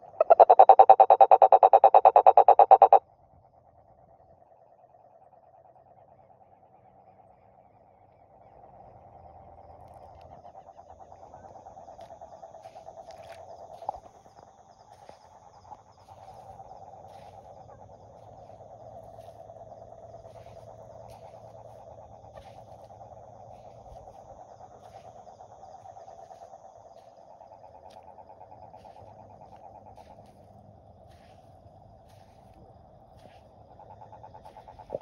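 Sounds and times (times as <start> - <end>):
toad trilling: 0.0 - 3.0, 10.6 - 30.4, 33.2 - 35.0
faint insects chirping: 0.0 - 35.0.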